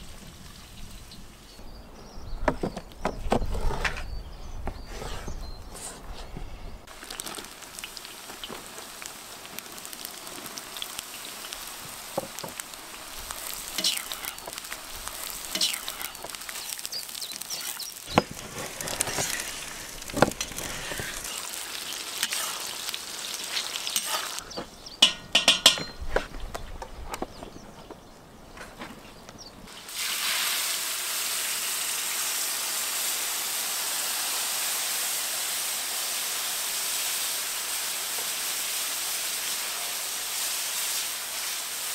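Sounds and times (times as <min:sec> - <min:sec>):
vegetables sizzling in hot oil: 0:06.9 - 0:24.6, 0:29.7 - 0:41.9
skimmer knocking against pot: 0:25.0 - 0:26.0.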